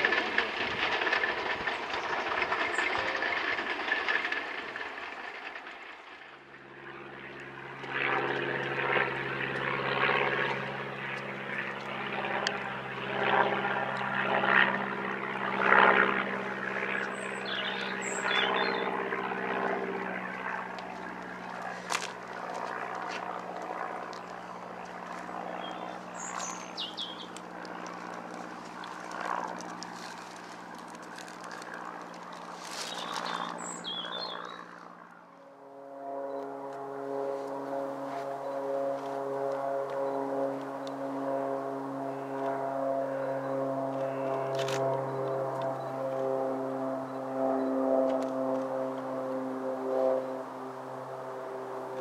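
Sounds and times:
propeller aircraft drone: 0:00.0 - 0:52.0
bird chirping: 0:17.1 - 0:18.9, 0:25.5 - 0:27.4, 0:32.8 - 0:34.7.

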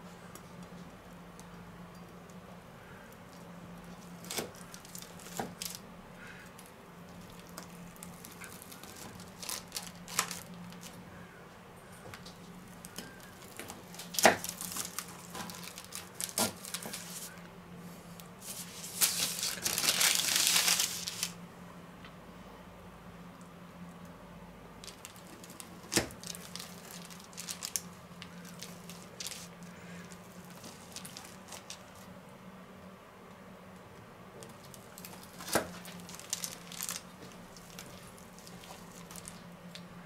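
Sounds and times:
parchment paper crinkling: 0:03.3 - 0:11.0, 0:12.4 - 0:17.4, 0:18.4 - 0:21.4, 0:24.8 - 0:32.1, 0:34.4 - 0:39.8.

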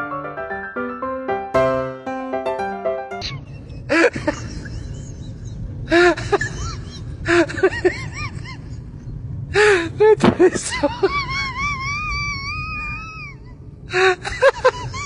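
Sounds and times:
steady low hum: 0:03.1 - 0:15.0.

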